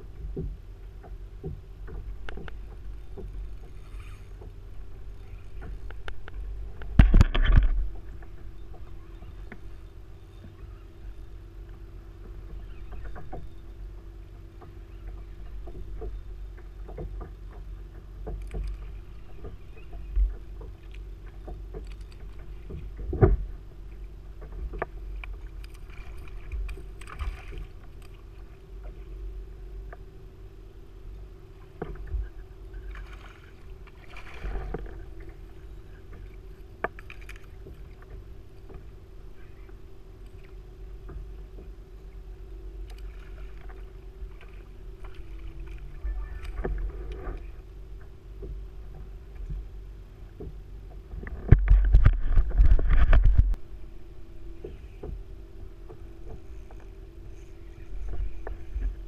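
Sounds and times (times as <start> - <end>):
faint steady hum: 0.0 - 59.0
water moving around hull: 0.0 - 59.0
gear knocking against kayak: 12.2 - 28.2.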